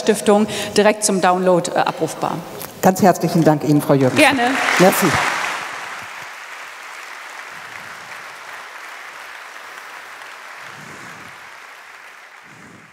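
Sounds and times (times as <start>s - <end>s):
audience applauding: 4.0s - 12.9s.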